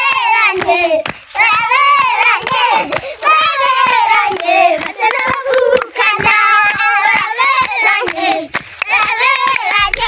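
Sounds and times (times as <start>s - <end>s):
children clapping: 0.0s - 10.0s
children singing: 0.0s - 10.0s.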